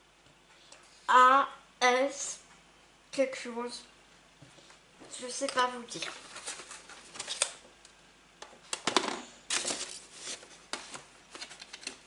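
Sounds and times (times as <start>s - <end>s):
paper sheets rustling: 5.9s - 7.6s, 9.5s - 12.0s.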